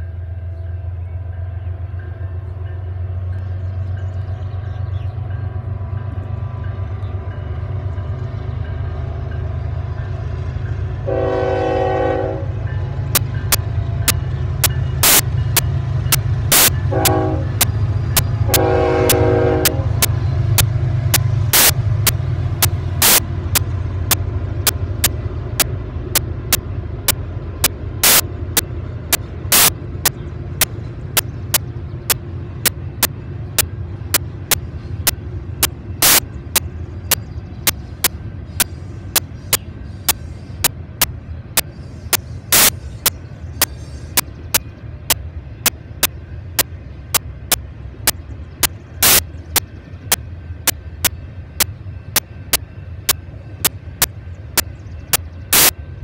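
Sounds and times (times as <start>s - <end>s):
railroad crossing bell: 0.0s - 28.0s, 48.8s - 56.0s.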